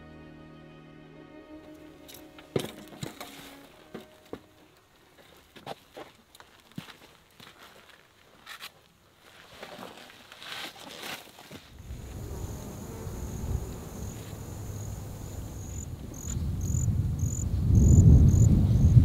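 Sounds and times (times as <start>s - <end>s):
low rumble: 11.7s - 19.0s
insect trilling: 11.8s - 18.5s.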